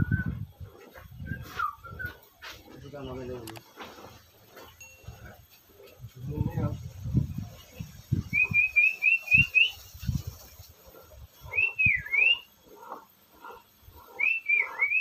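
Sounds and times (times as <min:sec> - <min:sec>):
bird whistling calls: 0:00.0 - 0:00.5, 0:01.1 - 0:02.6, 0:08.2 - 0:10.0, 0:11.4 - 0:12.5, 0:14.1 - 0:15.0.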